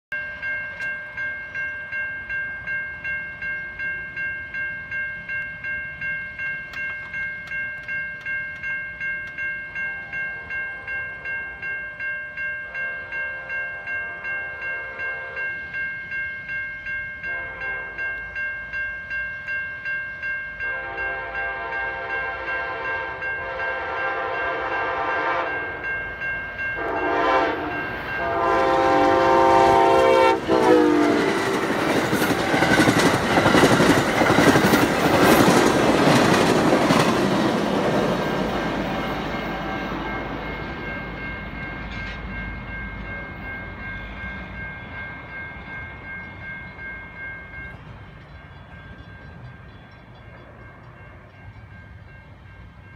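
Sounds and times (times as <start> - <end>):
railroad crossing bell ringing: 0.1 - 52.9
train horn blasts: 12.7 - 15.5, 17.2 - 18.2, 20.6 - 25.9, 26.8 - 31.7
train rumbling past: 20.2 - 52.9
wheels clattering on rail joints: 28.0 - 43.4.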